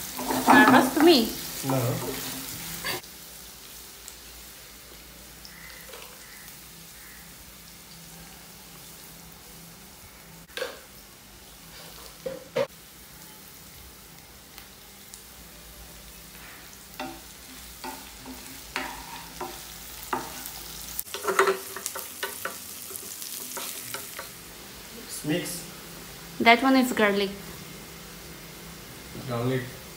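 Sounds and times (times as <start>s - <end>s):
spatula scraping a pan: 0.0s - 1.0s, 17.8s - 24.3s
oil sizzling: 0.0s - 29.9s.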